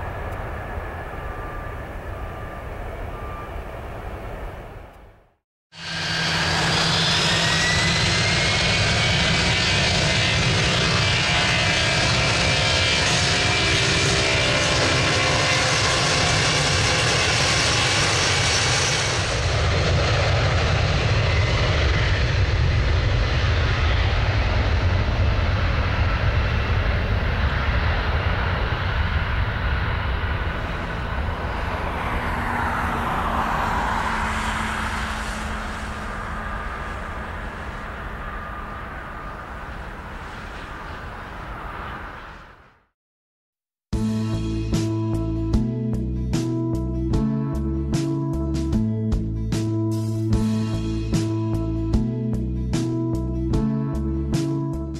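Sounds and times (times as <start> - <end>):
jet engines whining and rumbling: 0.0 - 42.9.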